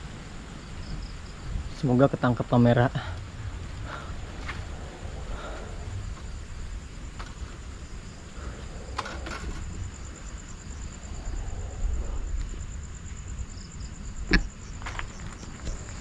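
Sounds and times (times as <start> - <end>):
insect trilling: 0.4 - 16.0
low rumble: 3.0 - 16.0.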